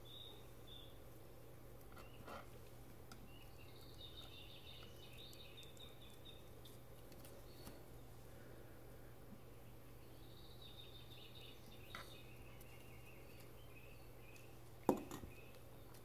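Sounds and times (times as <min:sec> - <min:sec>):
steady low hum: 0:00.0 - 0:16.0
faint high chirping: 0:03.2 - 0:07.8.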